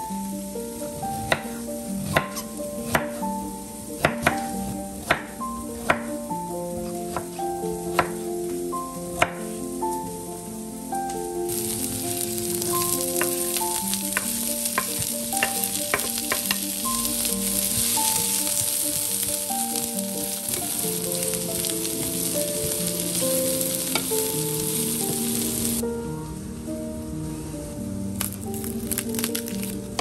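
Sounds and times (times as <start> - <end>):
soft melodic background music: 0.0 - 30.0
vegetables sizzling in oil: 11.4 - 25.8.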